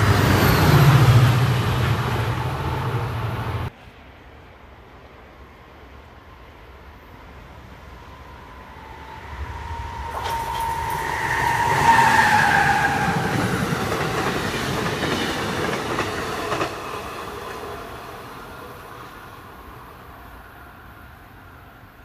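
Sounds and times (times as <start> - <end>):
locomotive high whine: 0.0 - 3.7, 7.6 - 15.5.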